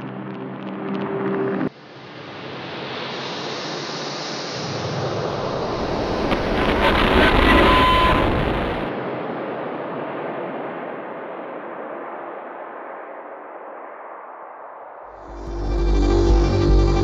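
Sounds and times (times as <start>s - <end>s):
rush of noise: 0.0s - 17.0s
deep rumble: 15.2s - 17.0s
pitched electronic drone: 15.2s - 17.0s.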